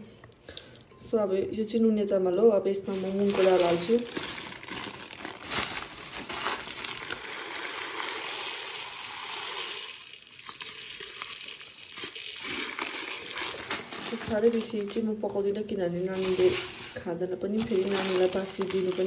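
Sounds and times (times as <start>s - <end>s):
dry lentils pouring into pot: 3.0s - 15.1s, 16.2s - 19.0s.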